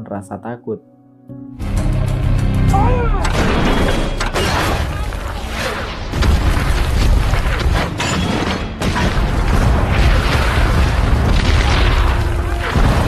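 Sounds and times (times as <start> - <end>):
artillery shells exploding: 5.8 - 13.0.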